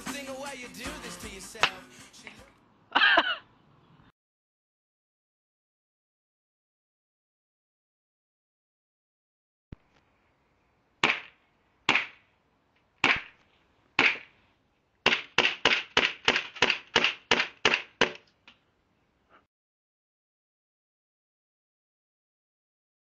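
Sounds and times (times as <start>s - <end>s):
airsoft pistol shots: 11.0s - 12.2s, 13.0s - 13.4s, 14.0s - 14.3s, 15.0s - 18.2s.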